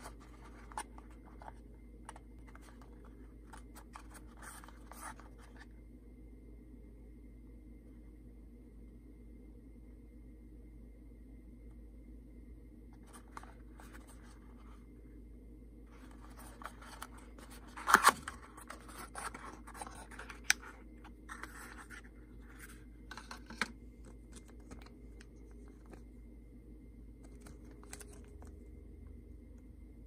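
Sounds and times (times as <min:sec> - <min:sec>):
cardboard scraping and rustling: 0:15.9 - 0:24.9
cardboard snapping: 0:17.8 - 0:19.3.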